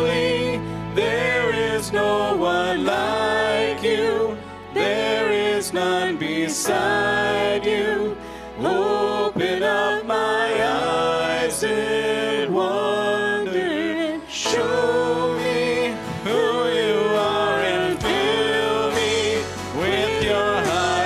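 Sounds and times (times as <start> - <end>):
low bass: 0.0 - 13.8, 14.4 - 21.0
singing with vibrato: 0.0 - 21.0
band accompaniment: 14.6 - 21.0.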